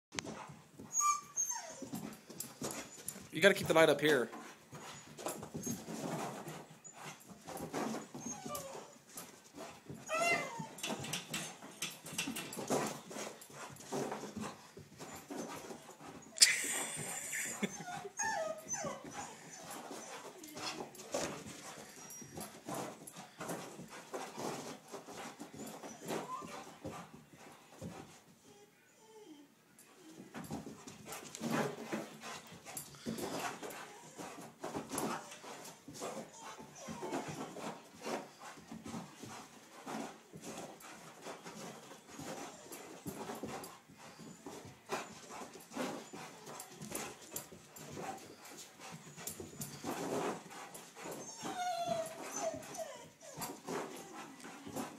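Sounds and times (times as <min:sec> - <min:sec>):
dog paws thumping on carpet: 0:01.8 - 0:16.3, 0:17.0 - 0:28.3, 0:30.2 - 0:54.9.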